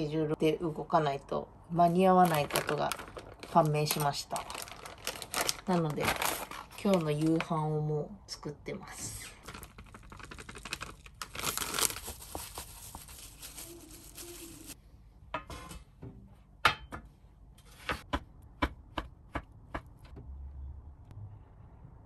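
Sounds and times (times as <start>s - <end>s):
plastic packaging crinkling and tearing: 2.2s - 7.6s, 9.4s - 14.8s.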